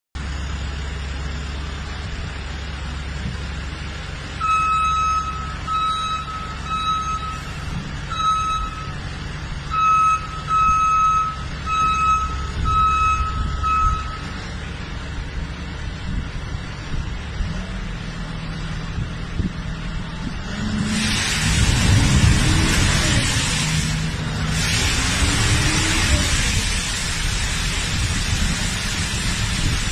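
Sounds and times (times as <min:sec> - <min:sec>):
tractor engine rumbling: 0:00.2 - 0:29.9
warning beeper beeping: 0:04.4 - 0:09.1, 0:09.7 - 0:14.4.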